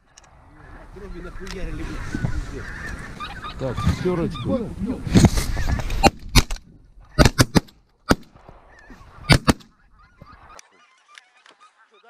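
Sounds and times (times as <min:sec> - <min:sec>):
geese honking: 0:00.6 - 0:04.7, 0:08.7 - 0:12.0.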